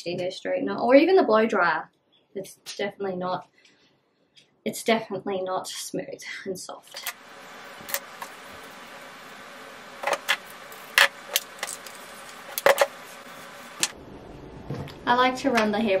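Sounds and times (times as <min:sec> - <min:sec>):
steady hiss: 0:07.0 - 0:14.0.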